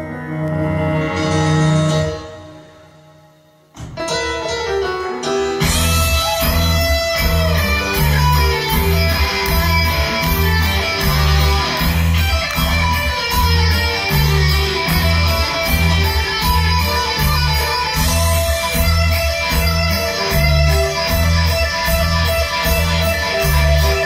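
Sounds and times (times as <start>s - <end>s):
keyboards: 0.0s - 24.0s
drums: 3.7s - 24.0s
electric guitar: 3.8s - 24.0s
bass line: 5.6s - 24.0s.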